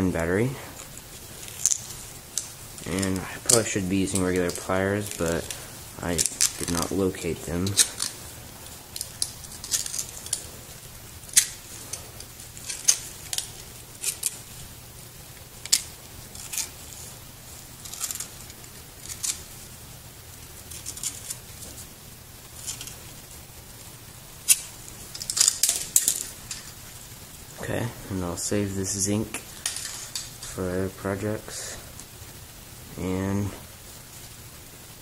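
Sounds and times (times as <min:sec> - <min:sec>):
metal casing crinkling and snipping: 0:00.8 - 0:14.7, 0:15.3 - 0:19.6, 0:20.6 - 0:23.3, 0:24.4 - 0:27.2, 0:29.0 - 0:30.7.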